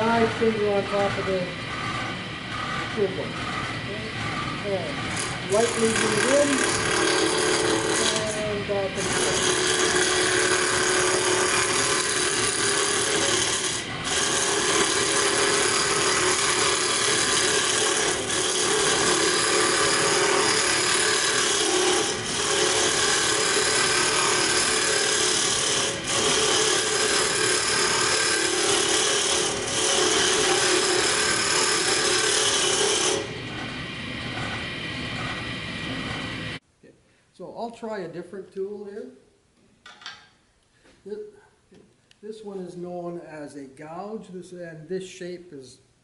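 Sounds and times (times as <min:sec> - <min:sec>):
scraper cutting wood on lathe: 0:00.0 - 0:36.4
lathe running hum: 0:00.0 - 0:36.6.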